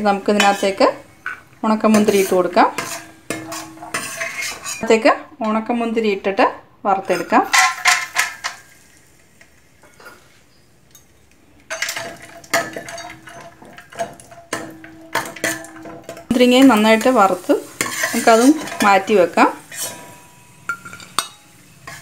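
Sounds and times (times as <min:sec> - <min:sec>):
sizzling hot fat: 0:00.0 - 0:04.8, 0:07.5 - 0:22.0
ladle scraping steel pot: 0:00.3 - 0:05.0, 0:11.7 - 0:22.0.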